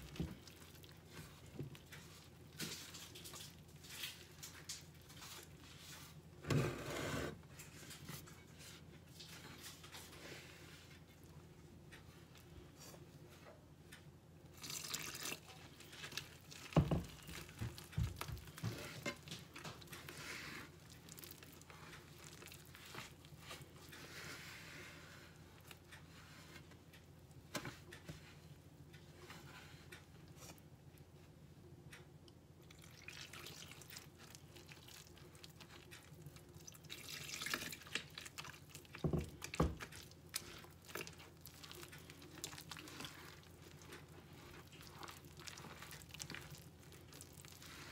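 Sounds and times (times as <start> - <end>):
hands working wet dough: 0.0 - 13.8, 14.4 - 31.4, 32.3 - 47.9
water pouring into flour: 14.5 - 15.6, 32.7 - 35.2, 36.6 - 38.9.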